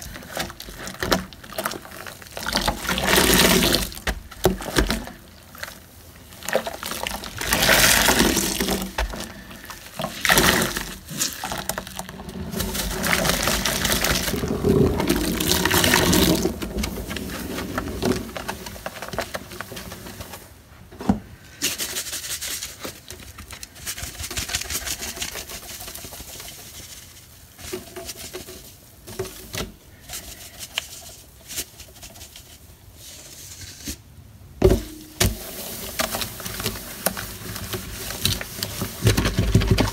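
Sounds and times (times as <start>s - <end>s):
wet sponge squelching in sink: 0.0s - 20.6s, 35.0s - 39.9s
wiping and rubbing around drain: 0.0s - 34.0s, 35.0s - 39.9s.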